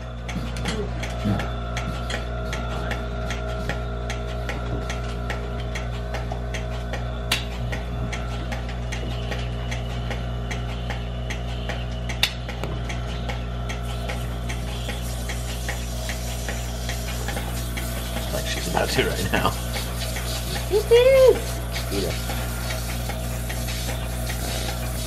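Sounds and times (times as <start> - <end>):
milking machine hum: 0.0 - 25.0
pulsator clicking: 0.0 - 25.0.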